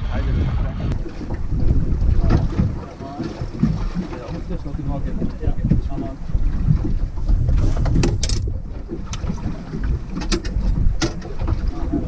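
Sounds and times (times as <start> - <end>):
wind rumbling on microphone: 0.0 - 12.0
fishing gear knocks and clicks: 7.5 - 11.6.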